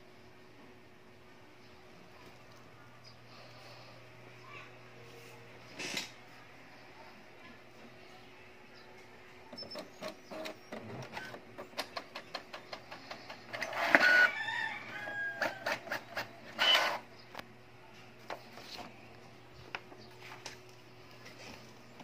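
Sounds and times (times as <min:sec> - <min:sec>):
printer squeaky chirps: 0:09.5 - 0:11.4, 0:13.5 - 0:14.3, 0:15.4 - 0:17.0
printer mechanism clicking: 0:09.5 - 0:14.3
printer whirring: 0:09.5 - 0:17.1.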